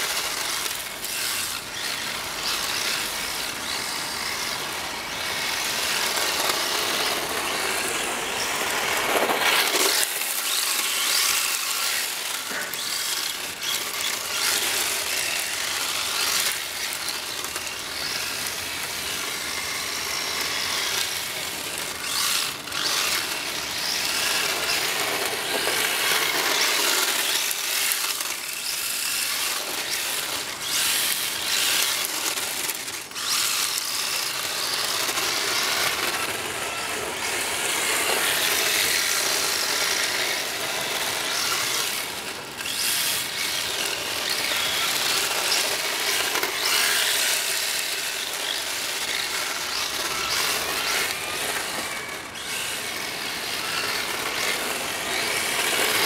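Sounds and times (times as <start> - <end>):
rc car motor whine: 0.0 - 56.0.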